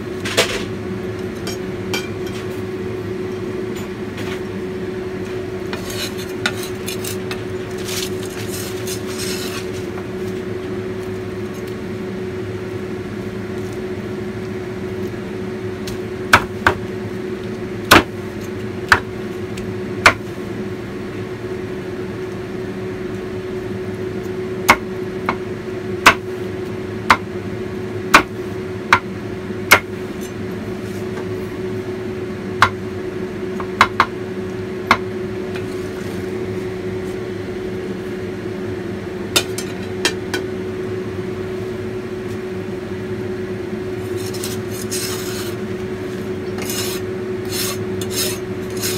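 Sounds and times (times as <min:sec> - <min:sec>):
electric hum: 0:00.0 - 0:48.9
knife scraping chopping board: 0:05.7 - 0:09.8, 0:44.0 - 0:45.6, 0:46.5 - 0:48.9
cleaver chopping on board: 0:16.4 - 0:16.8, 0:17.9 - 0:18.1.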